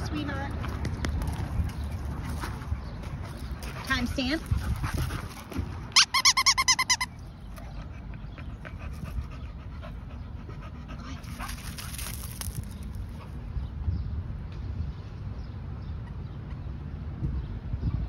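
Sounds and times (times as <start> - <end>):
dog panting: 2.2 - 11.9
high-pitched squeaks: 5.9 - 7.2.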